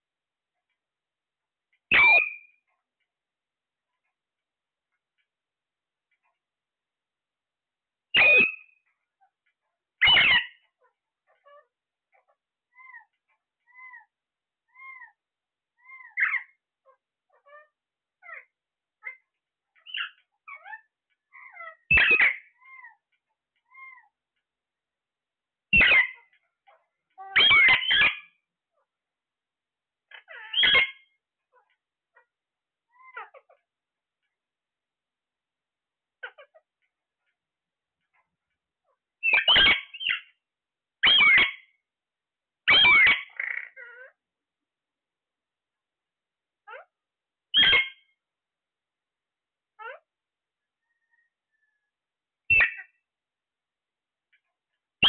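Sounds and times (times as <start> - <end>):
harsh parakeet squawks: 1.9 - 2.6, 8.1 - 8.9, 10.0 - 14.1, 14.7 - 15.2, 15.8 - 19.2, 19.8 - 23.0, 25.7 - 28.4, 30.1 - 32.3, 39.2 - 40.4, 41.0 - 41.8, 42.7 - 44.2, 47.5 - 48.2, 52.5 - 53.0
parakeets calling: 1.9 - 2.7, 8.2 - 8.8, 10.0 - 14.1, 14.7 - 15.2, 15.8 - 19.2, 19.8 - 23.1, 23.7 - 24.2, 25.8 - 28.4, 30.1 - 32.3, 32.9 - 33.6, 39.2 - 40.4, 41.0 - 41.8, 42.7 - 44.1, 47.5 - 48.2, 52.5 - 53.0.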